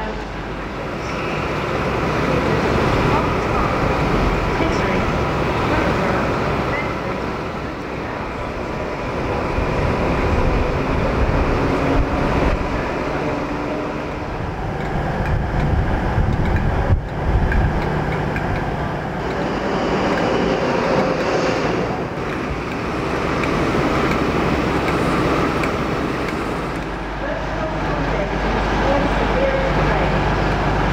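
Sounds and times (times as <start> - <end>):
diesel locomotives idling: 0.0 - 30.9.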